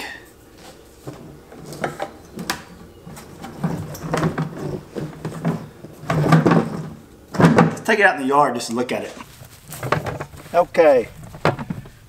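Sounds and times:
plastic rubbing and clunking: 1.0s - 7.9s, 9.1s - 12.0s
plastic bucket clicking and knocking: 1.6s - 7.8s, 9.7s - 10.5s, 11.1s - 12.0s.

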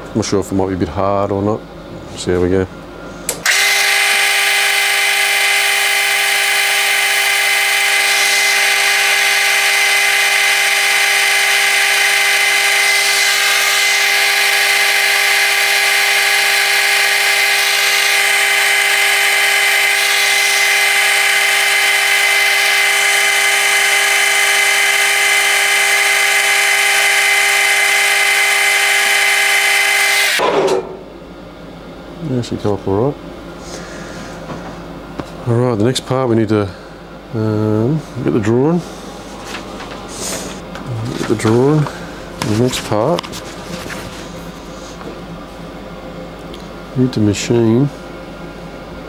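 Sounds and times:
metal lathe motor whine: 3.3s - 31.2s.

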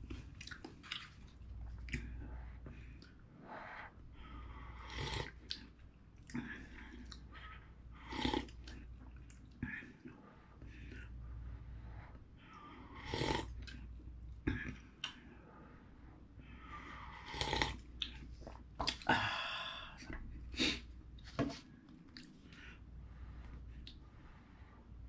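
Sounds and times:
chewing: 0.0s - 2.3s
slurping noodles: 8.0s - 8.9s, 12.8s - 13.8s, 16.8s - 19.0s.

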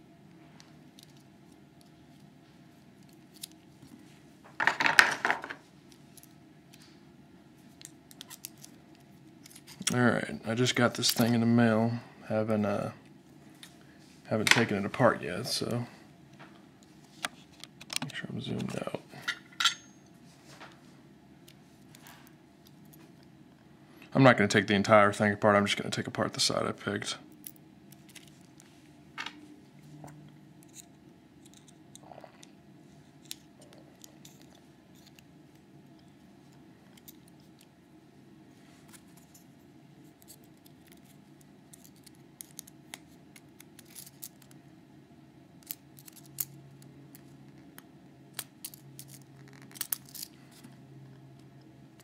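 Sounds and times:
low steady hum: 0.0s - 52.0s
small metallic clicks and scrapes: 45.6s - 47.3s.

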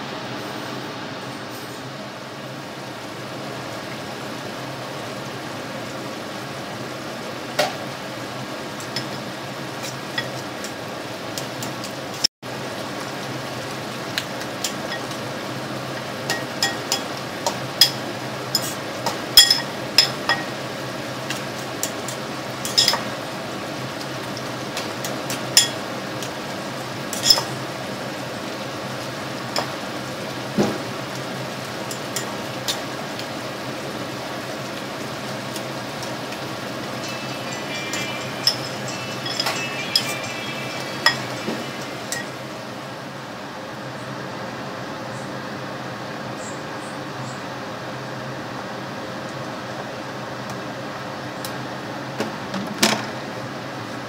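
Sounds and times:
meat sizzling in a wok: 2.0s - 43.6s.

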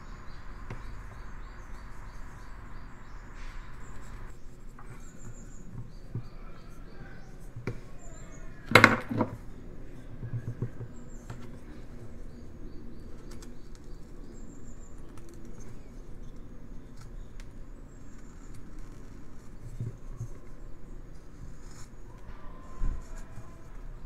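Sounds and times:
small wood clicks: 8.6s - 9.5s.

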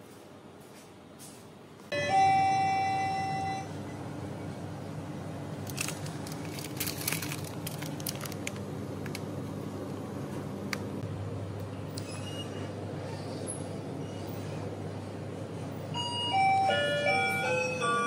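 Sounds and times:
low shop hum: 0.0s - 18.0s
electronic door chime: 1.9s - 3.8s, 16.0s - 18.0s.

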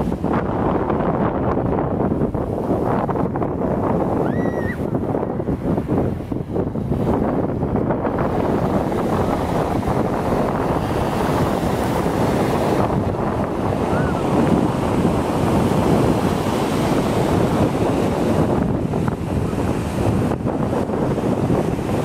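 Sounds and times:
surf breaking on beach: 0.0s - 22.0s
wind buffeting microphone: 0.0s - 22.0s.

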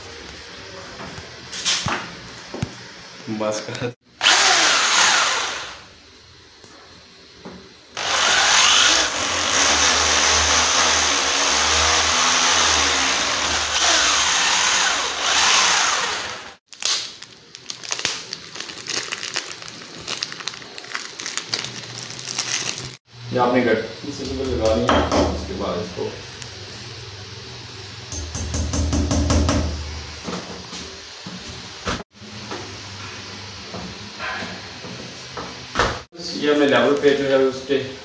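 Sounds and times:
hammer drill boring into wall: 8.0s - 16.6s
plastic bag crinkling: 16.7s - 23.0s.

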